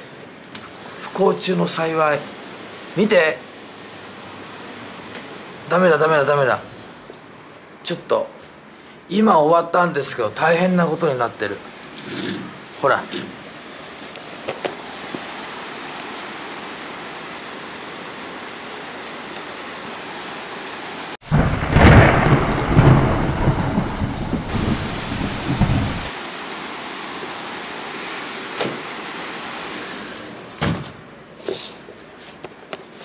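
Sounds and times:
heavy rain pouring: 0:01.0 - 0:06.6, 0:12.6 - 0:30.6
thunder rumbling: 0:21.2 - 0:26.1.

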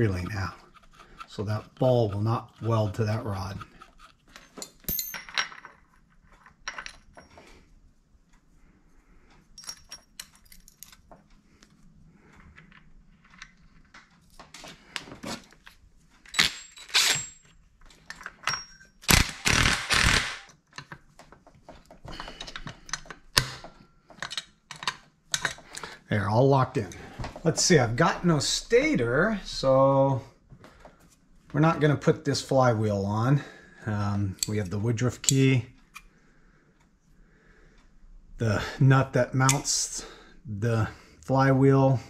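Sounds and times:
metal tools clinking and knocking: 0:02.9 - 0:07.5, 0:09.6 - 0:11.3, 0:15.5 - 0:19.1, 0:22.1 - 0:25.9.

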